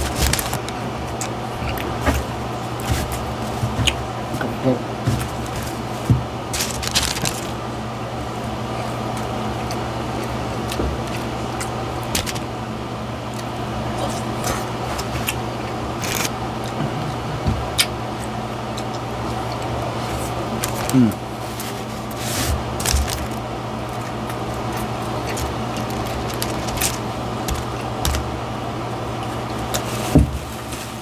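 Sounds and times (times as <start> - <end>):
chewing food crackles: 0.0 - 4.4, 5.2 - 30.0
steady low hum: 0.0 - 31.0
biting into burger: 13.2 - 30.0.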